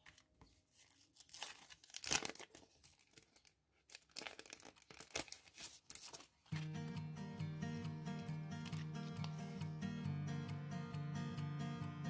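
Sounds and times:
plastic packet crinkling: 0:00.8 - 0:06.7.

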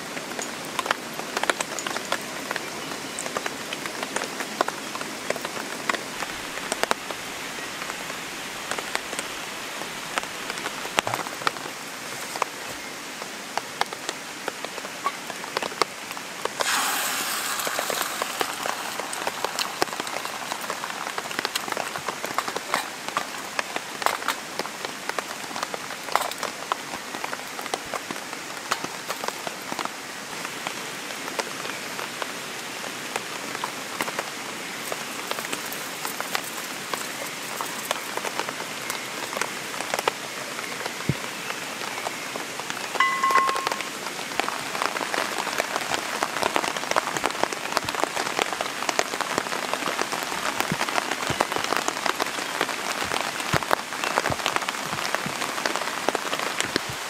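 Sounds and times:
rain pattering: 0:00.0 - 0:57.0
egg sizzling in hot oil: 0:16.6 - 0:20.8.

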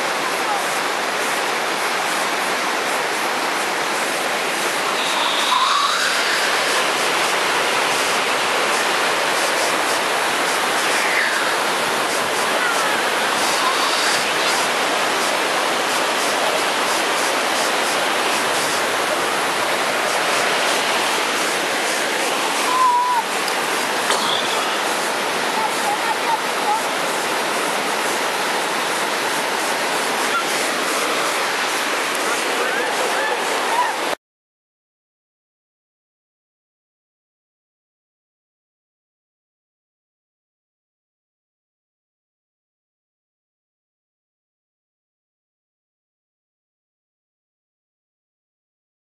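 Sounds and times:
stream and waterfall rushing: 0:00.0 - 0:34.2.

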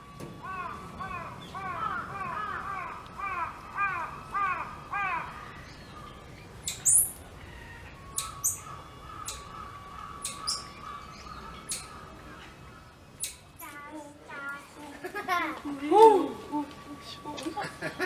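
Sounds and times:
crow cawing: 0:00.4 - 0:05.6, 0:08.6 - 0:13.0.

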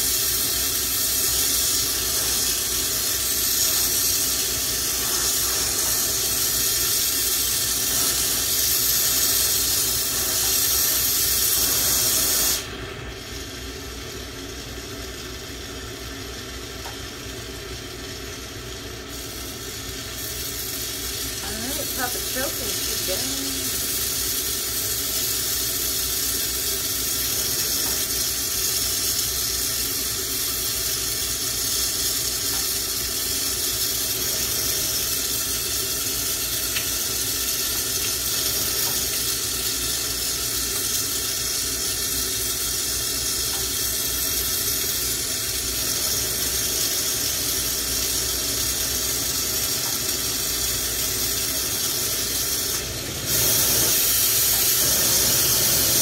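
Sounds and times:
torch burning with hiss: 0:00.0 - 0:56.0.

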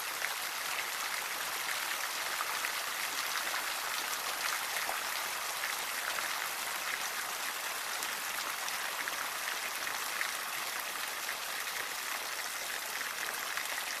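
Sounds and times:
fountain water splashing: 0:00.0 - 0:14.0.

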